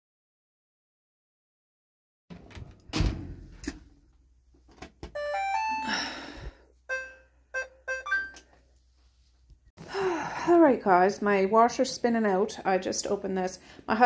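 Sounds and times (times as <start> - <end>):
thump: 2.9 - 3.6
rising chime melody: 5.2 - 6.2, 6.9 - 8.4
short electronic beeps: 6.9 - 8.4.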